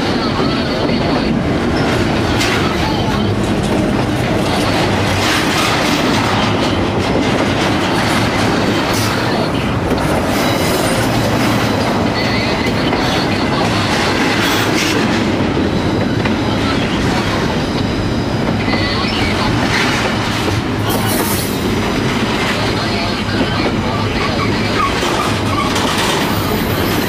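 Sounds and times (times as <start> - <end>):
freight train wheels rumbling on rails: 0.0 - 27.0
high wheel squeal: 24.2 - 27.0.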